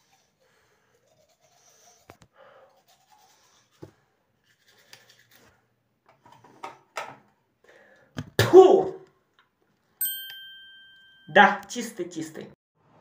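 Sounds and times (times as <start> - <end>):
toothbrush scrubbing teeth: 0.0 - 5.6.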